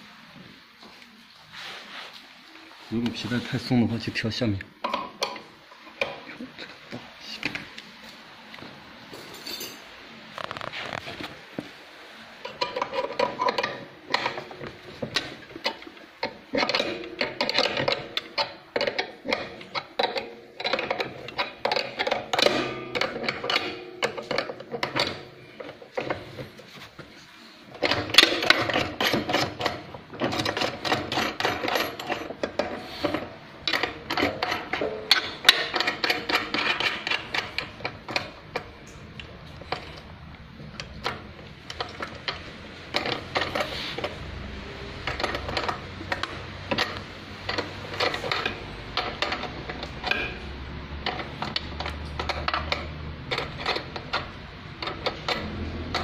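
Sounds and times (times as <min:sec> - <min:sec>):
wrench and metal parts clattering: 0:09.2 - 0:09.8, 0:12.4 - 0:26.5, 0:27.8 - 0:40.0, 0:40.8 - 0:44.3, 0:44.9 - 0:56.0.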